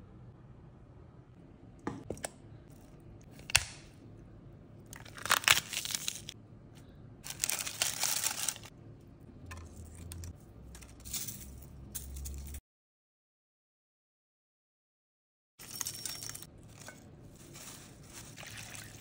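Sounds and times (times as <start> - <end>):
celery crunching and rustling: 4.9 - 6.4, 7.2 - 8.7, 15.6 - 19.0.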